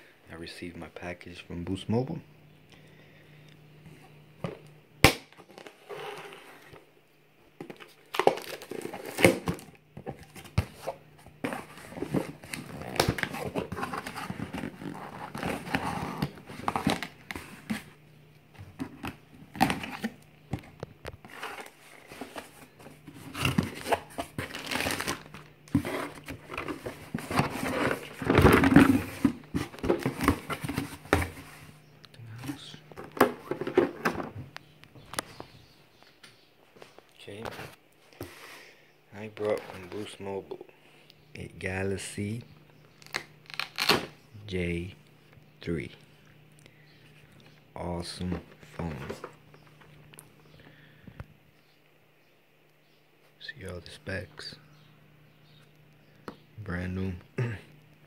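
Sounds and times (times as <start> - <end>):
cardboard rustling and crinkling: 7.6 - 31.8
packing tape slit and torn: 43.0 - 44.1.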